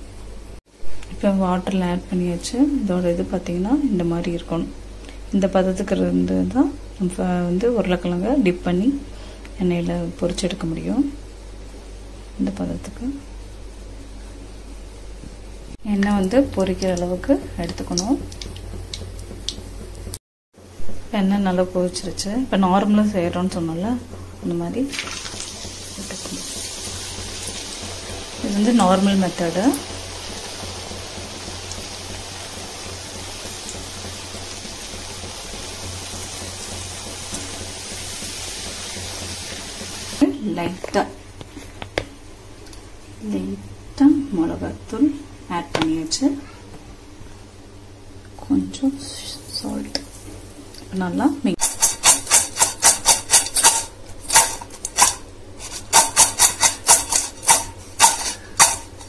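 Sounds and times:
oil sizzling while deep-frying: 0:00.0 - 0:44.3, 0:44.9 - 0:59.0
fries scraping in metal bowl: 0:24.7 - 0:41.8, 0:49.0 - 0:50.6, 0:51.5 - 0:59.0.

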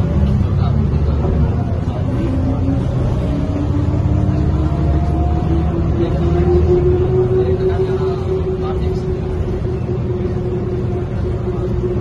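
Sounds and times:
bus engine rumble: 0:00.0 - 0:12.0
drivetrain whine rising in pitch: 0:03.0 - 0:12.0.

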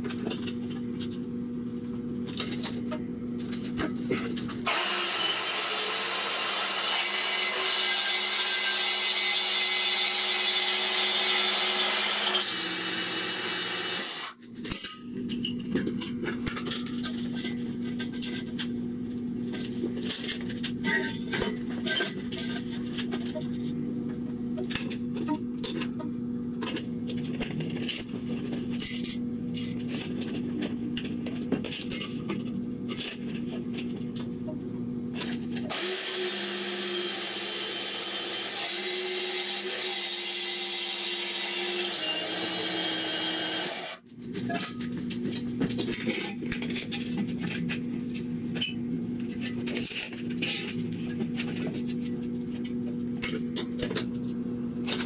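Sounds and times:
band saw motor hum: 0:04.6 - 0:14.4, 0:35.2 - 0:44.1
saw blade rasping through metal: 0:04.7 - 0:14.4, 0:35.7 - 0:44.0.

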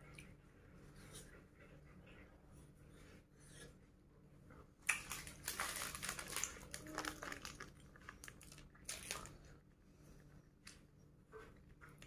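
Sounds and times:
plastic wrapper crinkling: 0:04.8 - 0:09.4.

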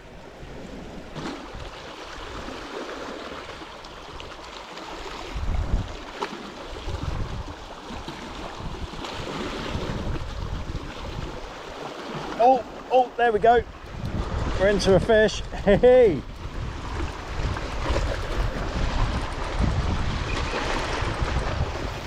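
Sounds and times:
waves splashing against rocks: 0:00.7 - 0:22.0
wind buffeting microphone: 0:05.1 - 0:06.1, 0:06.7 - 0:12.3, 0:13.2 - 0:22.0.

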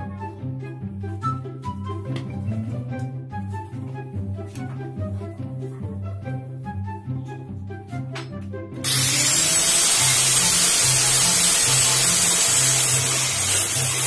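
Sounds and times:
angle grinder grinding wood: 0:08.8 - 0:14.0.

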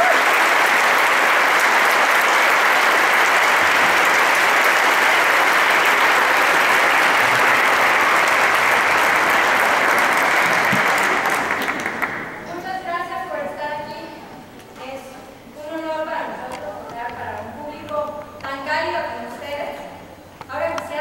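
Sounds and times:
large audience applauding: 0:00.0 - 0:12.5.

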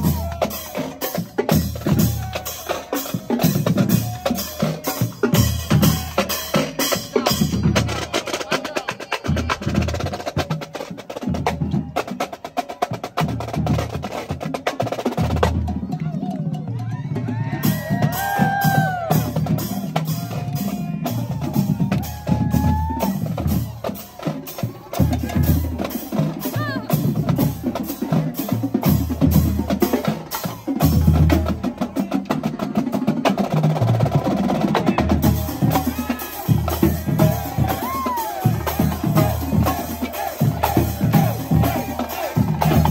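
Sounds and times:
deep drum beat: 0:17.4 - 0:23.9, 0:33.6 - 0:42.9
snare drums rattling: 0:17.6 - 0:42.9.

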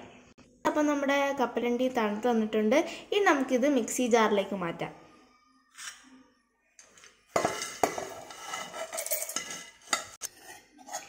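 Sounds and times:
peanuts clattering into steel jar: 0:08.6 - 0:09.6.

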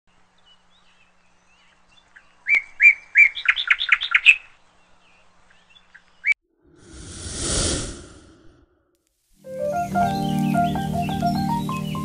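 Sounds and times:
bird whistling and chirping: 0:09.6 - 0:12.0.

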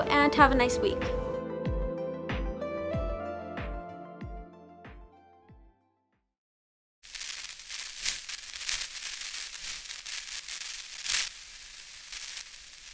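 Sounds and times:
crackling static hiss: 0:07.0 - 0:12.9
sharp static pops: 0:07.0 - 0:12.9.

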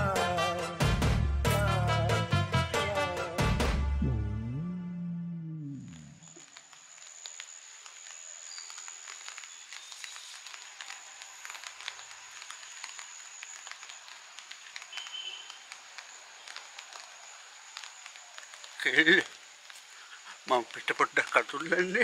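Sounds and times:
faint ticks: 0:05.8 - 0:22.0.

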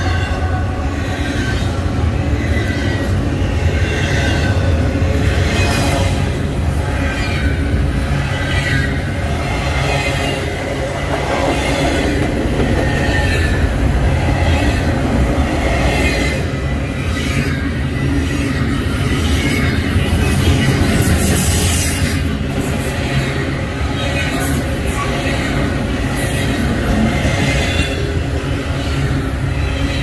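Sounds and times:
freight train cars rumbling: 0:00.0 - 0:30.0
steel wheels squealing on rails: 0:00.0 - 0:30.0.

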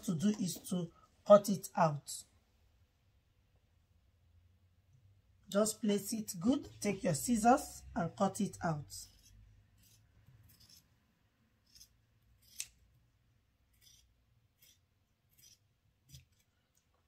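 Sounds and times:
scissors snipping fabric: 0:08.3 - 0:11.0, 0:11.6 - 0:17.0.

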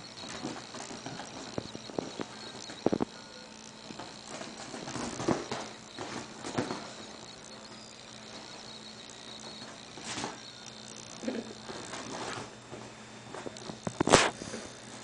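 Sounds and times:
goat hooves thumping on a sofa: 0:03.9 - 0:07.0.

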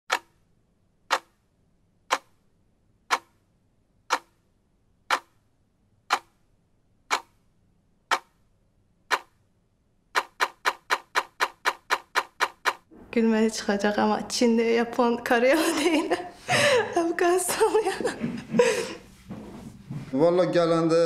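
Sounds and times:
clock ticking: 0:00.1 - 0:00.4, 0:01.0 - 0:01.4, 0:02.0 - 0:02.4, 0:03.0 - 0:04.4, 0:05.0 - 0:05.4, 0:06.0 - 0:06.4, 0:07.1 - 0:07.4, 0:08.1 - 0:08.4, 0:09.1 - 0:09.4, 0:10.2 - 0:12.9.

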